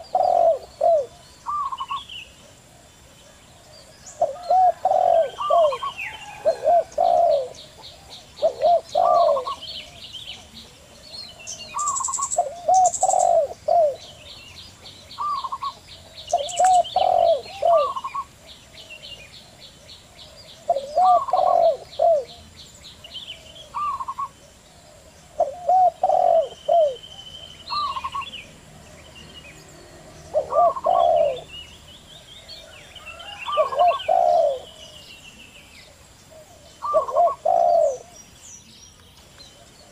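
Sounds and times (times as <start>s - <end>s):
very high bird chirps: 0.0s - 2.4s, 11.4s - 18.3s, 23.3s - 24.4s, 25.4s - 31.9s
doves cooing: 0.0s - 38.4s
small bird ticking trill: 11.5s - 18.3s.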